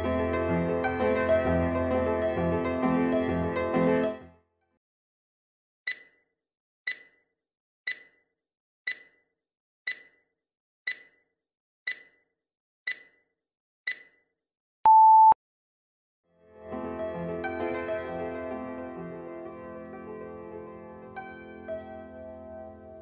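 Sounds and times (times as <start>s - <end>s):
steady timer beep: 5.9s - 6.2s, 6.9s - 7.2s, 7.9s - 8.2s, 8.9s - 9.2s, 9.9s - 10.2s, 10.9s - 11.2s, 11.9s - 12.2s, 12.9s - 13.2s, 13.9s - 14.2s, 14.9s - 15.4s
timer ticking: 5.9s - 6.2s, 6.9s - 7.2s, 7.9s - 8.2s, 8.9s - 9.2s, 9.9s - 10.2s, 10.9s - 11.2s, 11.9s - 12.2s, 12.9s - 13.2s, 13.9s - 14.2s.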